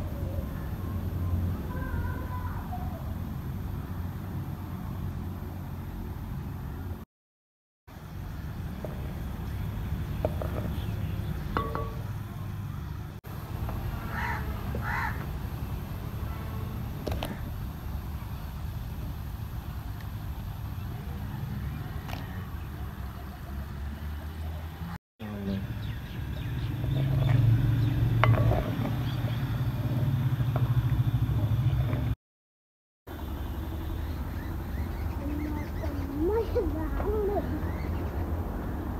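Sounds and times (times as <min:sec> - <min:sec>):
wooden spoon clinking on clay pot: 0:11.5 - 0:12.1, 0:28.2 - 0:30.1
bird calling: 0:13.9 - 0:15.4, 0:33.8 - 0:38.4.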